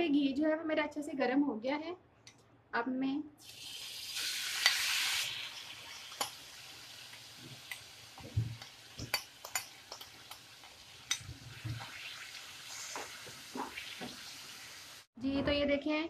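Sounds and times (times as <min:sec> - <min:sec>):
chicken sizzling in frying pan: 0:03.4 - 0:15.1
spoon clicking against pan: 0:08.6 - 0:10.4.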